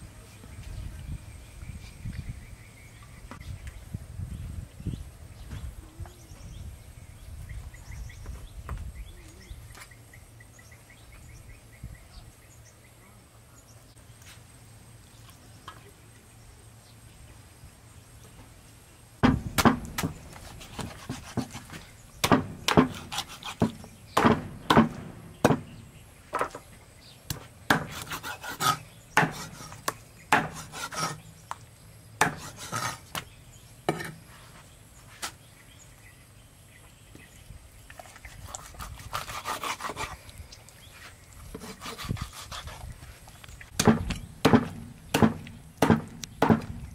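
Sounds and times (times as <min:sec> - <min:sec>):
cleaver chopping on wooden block: 0:19.2 - 0:25.8, 0:27.3 - 0:31.2, 0:32.2 - 0:33.3, 0:43.8 - 0:46.9.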